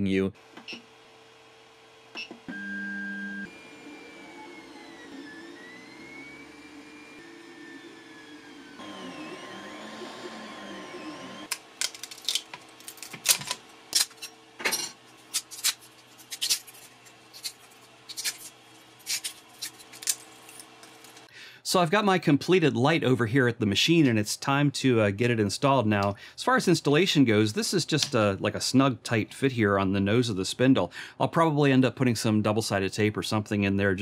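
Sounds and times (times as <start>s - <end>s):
stepper motors whining: 2.1s - 11.6s
plastic snapping and crackling: 11.5s - 14.1s.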